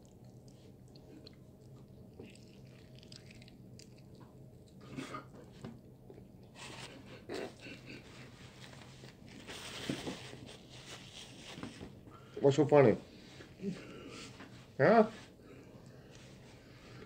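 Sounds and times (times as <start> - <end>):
crunchy chewing: 0.0 - 9.4
paper napkin rustle: 8.1 - 12.0.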